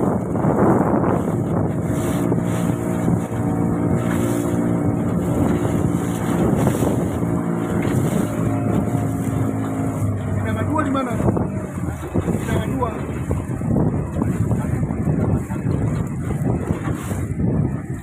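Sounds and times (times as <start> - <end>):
boat engine running: 0.0 - 18.0
wind noise on microphone: 0.0 - 18.0.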